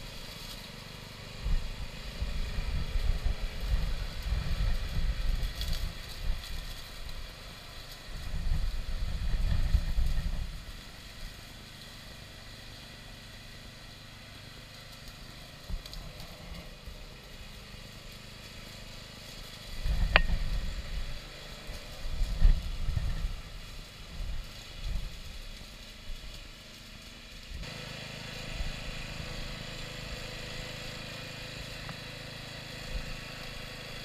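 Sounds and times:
wind buffeting microphone: 0:01.6 - 0:06.6.

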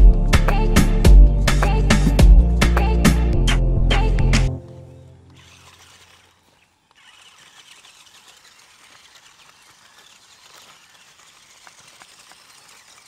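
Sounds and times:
small sharp ticks: 0:04.7 - 0:13.0
tyres rolling over dry leaves: 0:04.7 - 0:13.0.

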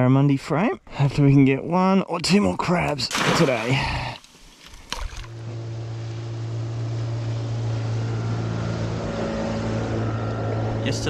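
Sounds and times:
outboard motor humming: 0:03.2 - 0:11.0.

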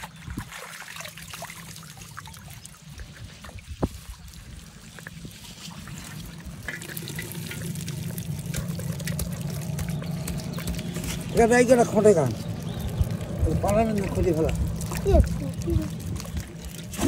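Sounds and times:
water trickling and dripping: 0:00.0 - 0:17.0
low rumble: 0:05.8 - 0:17.0.

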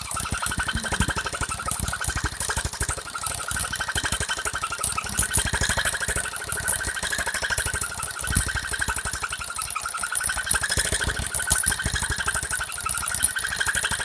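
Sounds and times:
scroll saw cutting wood: 0:00.0 - 0:14.0.

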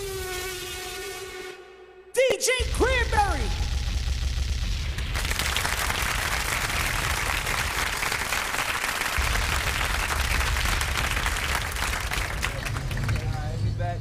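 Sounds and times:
low bass: 0:02.6 - 0:07.7
applause: 0:05.1 - 0:13.6.

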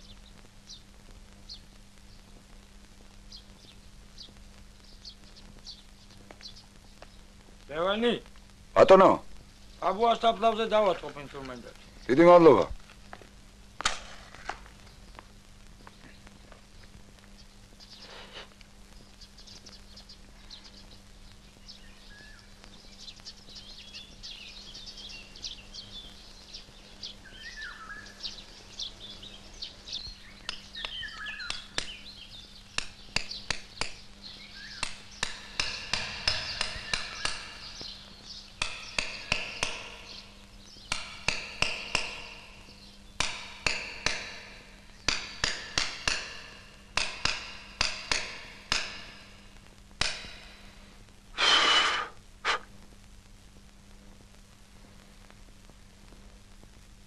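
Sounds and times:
bird chirps: 0:17.4 - 0:41.0
hammer striking chisel on stone: 0:43.2 - 0:44.4, 0:45.1 - 0:49.1.

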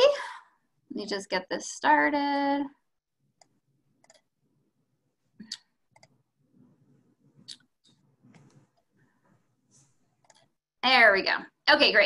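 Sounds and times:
computer mouse clicks: 0:03.4 - 0:04.3, 0:05.5 - 0:06.2, 0:10.2 - 0:10.6.

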